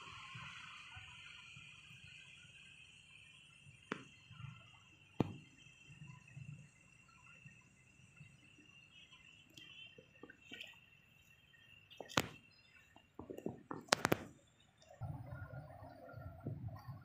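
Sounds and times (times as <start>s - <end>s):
faint steady high tone: 0.0s - 13.8s
sharp clicks and knocks: 13.2s - 14.4s
low rumbling noise: 15.0s - 17.0s.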